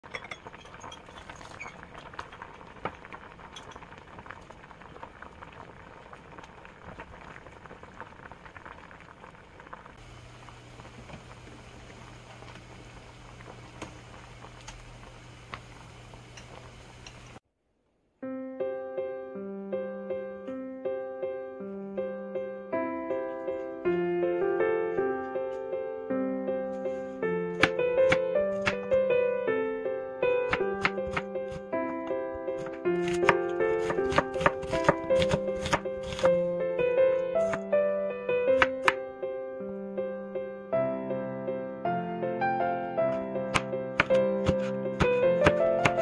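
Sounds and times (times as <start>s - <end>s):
soup boiling and bubbling: 0.0s - 17.4s, 32.6s - 37.6s, 43.5s - 46.0s
soft piano music: 18.2s - 46.0s.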